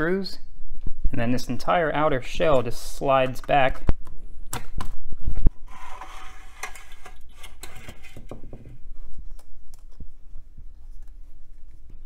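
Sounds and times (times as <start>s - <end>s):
metal shell scraping slide: 5.6s - 8.4s.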